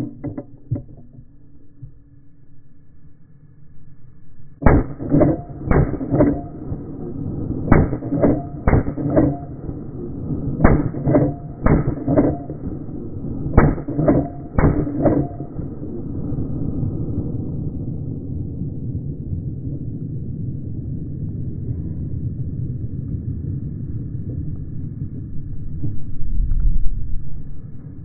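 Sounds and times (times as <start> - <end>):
rifle shots: 4.6 - 16.0
weaker echo crack: 4.6 - 16.8.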